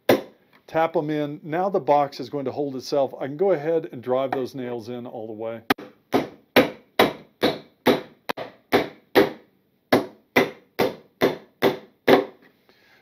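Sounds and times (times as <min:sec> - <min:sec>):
hammer striking nails into wood: 0:05.7 - 0:12.4.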